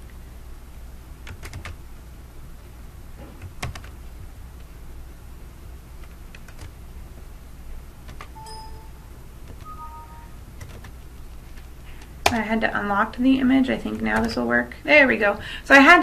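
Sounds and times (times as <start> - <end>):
steady low hum: 0.0 - 16.0
computer keys and mouse clicking: 3.4 - 4.0, 6.0 - 6.8, 8.0 - 11.0.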